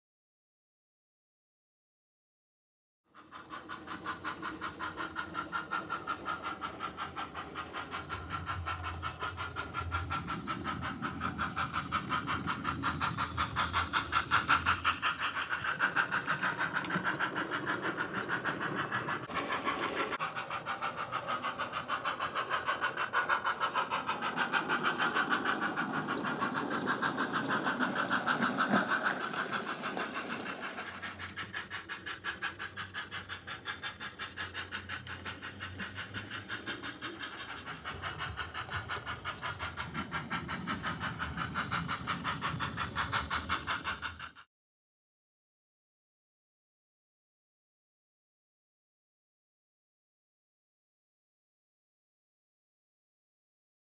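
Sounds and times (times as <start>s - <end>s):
model train steam chuffs: 3.1s - 44.5s.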